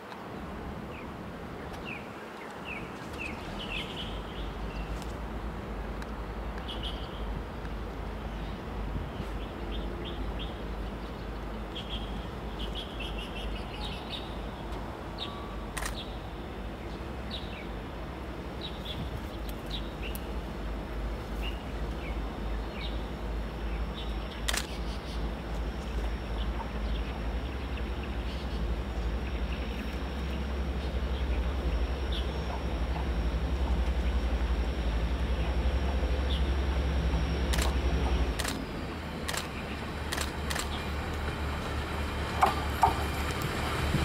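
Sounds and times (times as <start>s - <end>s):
small birds chirping: 8.3s - 17.7s.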